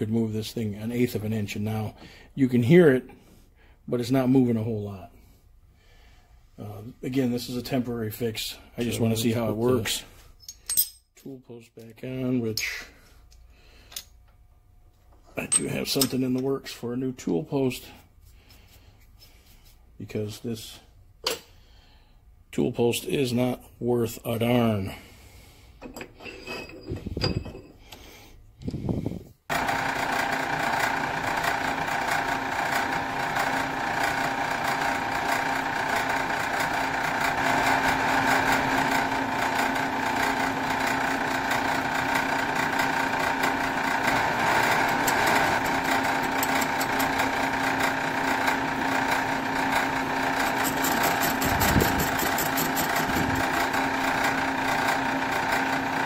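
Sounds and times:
metal lathe humming: 29.5s - 56.0s.

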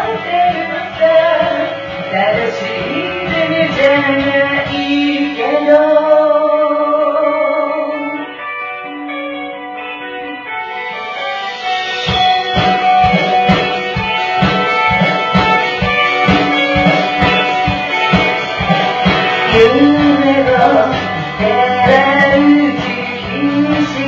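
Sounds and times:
person singing: 0.0s - 8.9s, 15.0s - 24.0s
pop-rock guitar and drums: 0.0s - 24.0s.

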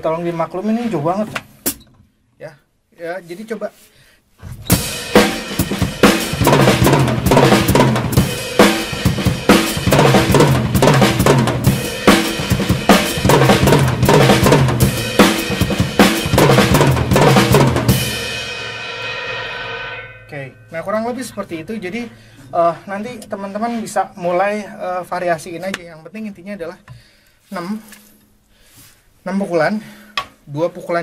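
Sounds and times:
drum kit playing: 4.6s - 22.4s
cymbal ringing: 17.9s - 24.5s.

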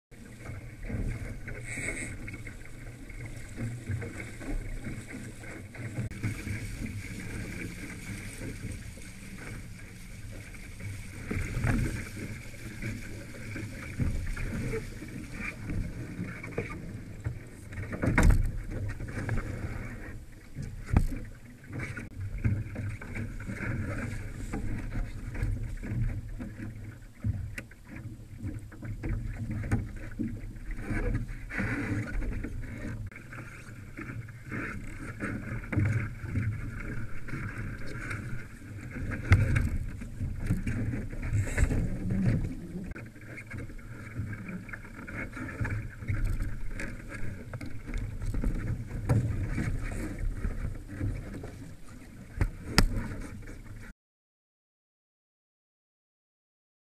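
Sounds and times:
water rushing along hull: 0.1s - 53.9s
wind buffeting camera: 39.0s - 43.0s.

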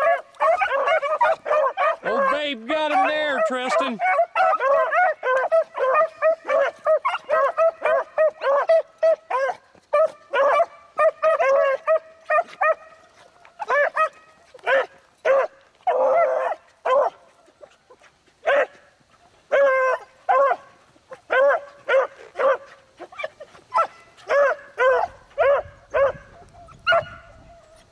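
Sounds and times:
pack of dogs baying: 0.0s - 27.9s.

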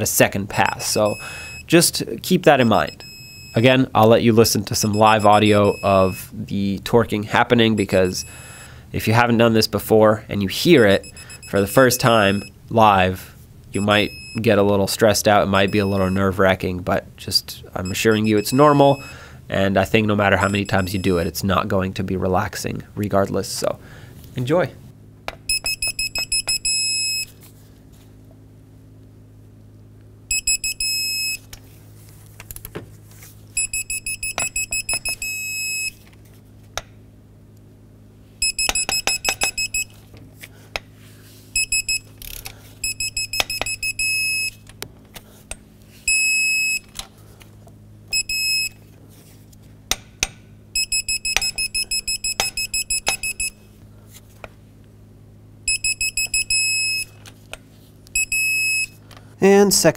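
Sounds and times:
torque wrench rapid beeps: 2.6s - 3.6s, 4.9s - 6.2s, 7.8s - 8.4s, 10.8s - 12.5s, 17.8s - 19.1s, 25.5s - 27.3s, 30.3s - 31.4s, 33.6s - 35.9s, 38.4s - 39.9s, 41.6s - 42.1s, 42.8s - 44.6s, 48.1s - 48.8s, 50.8s - 53.6s, 55.7s - 57.1s, 58.2s - 59.0s
torque wrench steady tone: 38.4s - 39.9s, 50.8s - 53.6s.

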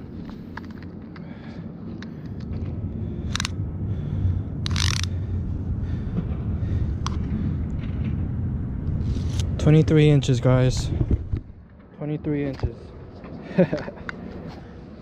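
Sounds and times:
steady low rumble: 0.0s - 15.0s.

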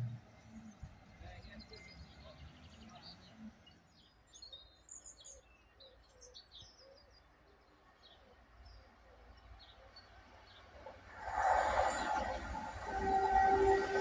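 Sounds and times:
small birds chirping: 0.2s - 11.0s.

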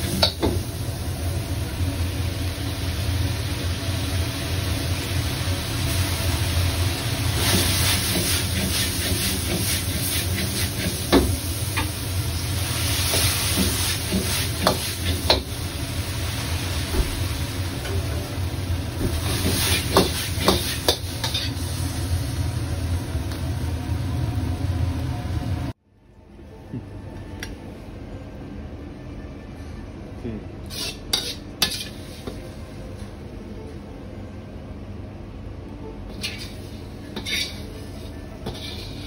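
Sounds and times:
food sizzling in a wok: 0.0s - 25.8s, 30.7s - 32.6s, 36.1s - 39.0s
gas burner rumbling: 0.0s - 25.8s, 35.8s - 39.0s.

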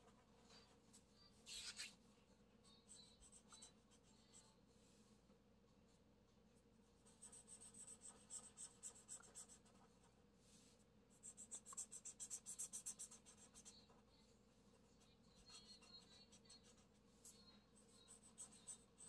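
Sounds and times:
marker scratching on paper: 1.5s - 2.0s, 7.1s - 9.9s, 11.2s - 13.9s, 15.3s - 19.0s.

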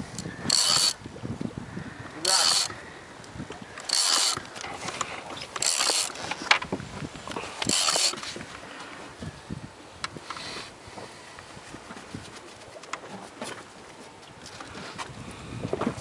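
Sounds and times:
fishing reel drag buzzing: 0.2s - 1.0s, 2.2s - 2.8s, 3.8s - 4.5s, 5.6s - 6.2s, 7.6s - 8.2s.

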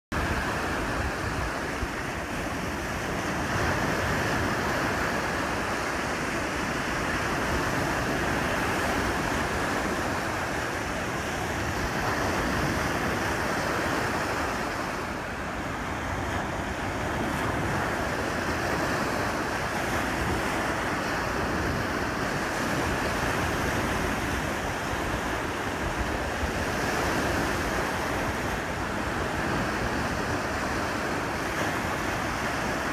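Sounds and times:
lake waves breaking on shore: 0.1s - 32.9s
wind on microphone: 0.1s - 32.9s.

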